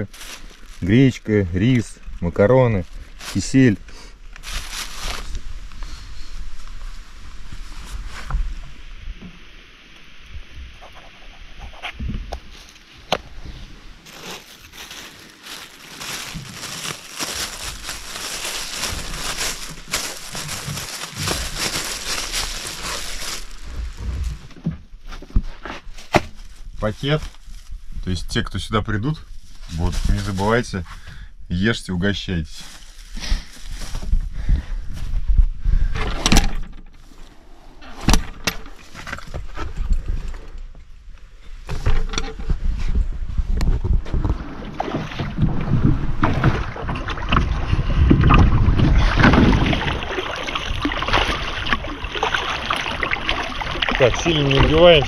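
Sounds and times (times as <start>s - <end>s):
plastic bag crinkling: 0.0s - 1.2s, 4.4s - 5.4s, 14.0s - 24.5s, 32.6s - 34.0s.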